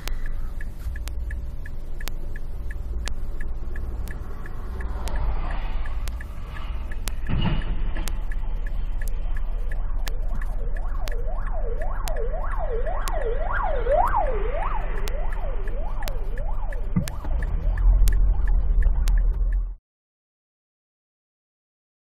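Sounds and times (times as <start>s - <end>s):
low road rumble: 0.0s - 19.8s
emergency siren yelping: 8.3s - 18.9s.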